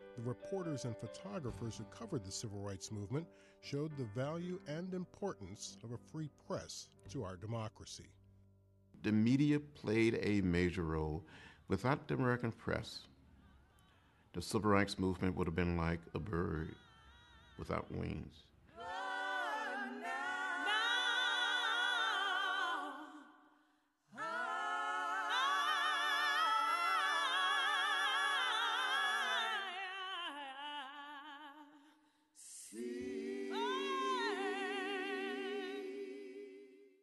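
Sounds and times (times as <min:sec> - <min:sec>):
voices singing unaccompanied: 0:16.3 - 0:23.5, 0:24.1 - 0:30.9, 0:32.4 - 0:37.0.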